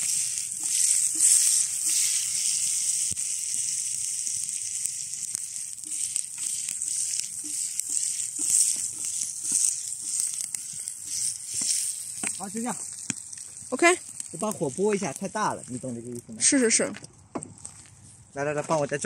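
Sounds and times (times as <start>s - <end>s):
food sizzling in frying pan: 0.0s - 16.8s
wood fire crackles: 0.0s - 19.0s.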